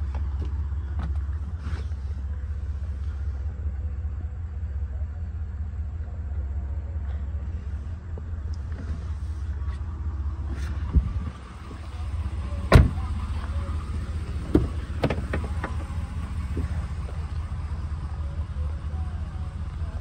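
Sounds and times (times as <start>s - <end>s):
low rumble: 0.0s - 20.0s
truck door shutting: 12.5s - 13.2s, 14.2s - 16.8s.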